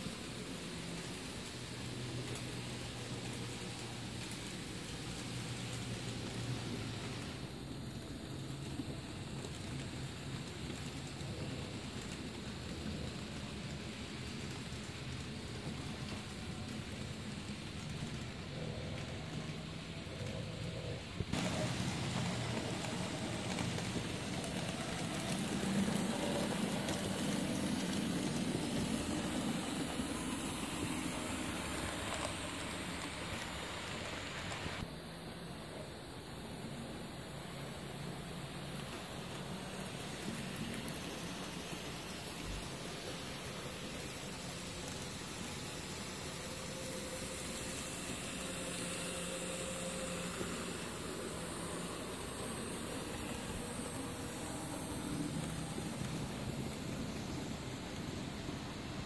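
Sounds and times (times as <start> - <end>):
model train whirring on rails: 0.0 - 59.0
small electric motor humming: 40.2 - 58.2.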